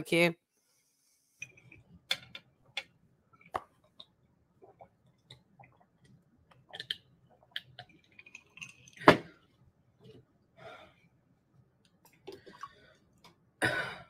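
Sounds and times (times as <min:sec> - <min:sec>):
swallowing juice: 0:03.4 - 0:10.2, 0:12.0 - 0:13.4.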